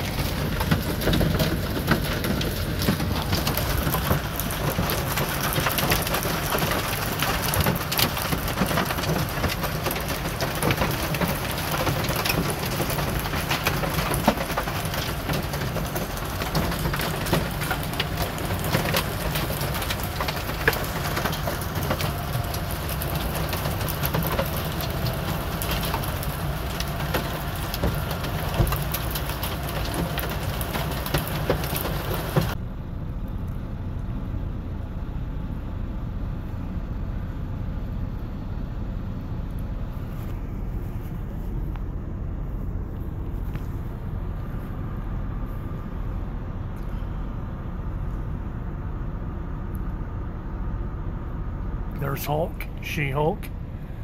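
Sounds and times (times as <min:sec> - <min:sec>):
heavy rain on truck roof: 0:00.0 - 0:32.7, 0:51.4 - 0:54.0
low steady rumble: 0:00.0 - 0:54.0.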